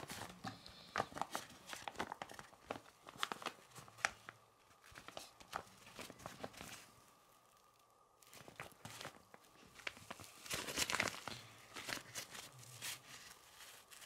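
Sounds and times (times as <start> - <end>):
fabric pouch rustling: 0.0 - 14.0.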